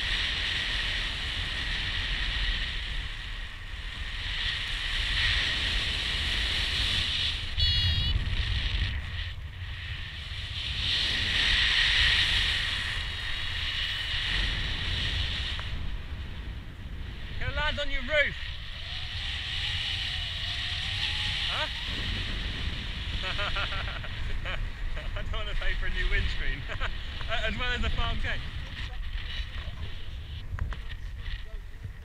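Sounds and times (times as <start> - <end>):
wind buffeting microphone: 0.0 - 32.0
brief high-pitched tone: 7.6 - 8.2.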